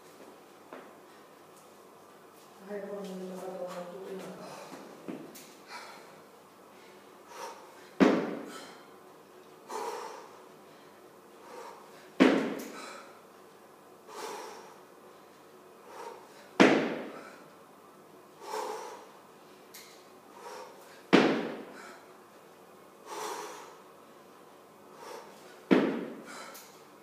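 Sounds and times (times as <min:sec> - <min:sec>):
forceful breaths: 0:04.3 - 0:09.0, 0:09.6 - 0:13.3, 0:14.0 - 0:17.6, 0:18.3 - 0:22.2, 0:23.0 - 0:26.8
kettlebell jolt: 0:08.0 - 0:08.6, 0:12.2 - 0:12.8, 0:16.6 - 0:17.2, 0:21.1 - 0:21.7.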